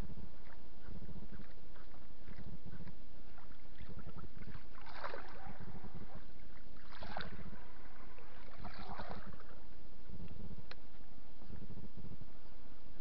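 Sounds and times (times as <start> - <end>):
low rumble: 0.0 - 13.0
water sloshing and splashing: 0.3 - 9.7.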